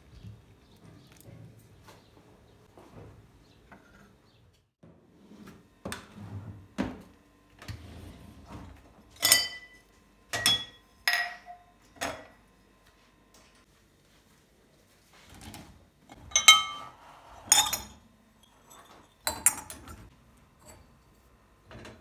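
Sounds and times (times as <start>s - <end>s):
dishes clinking: 9.1s - 12.4s, 16.1s - 21.1s
dishware clattering in rack: 9.2s - 12.3s, 16.1s - 20.1s.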